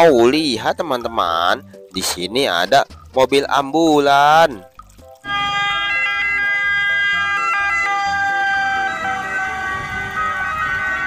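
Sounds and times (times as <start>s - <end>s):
ambulance two-tone siren passing: 5.2s - 11.0s.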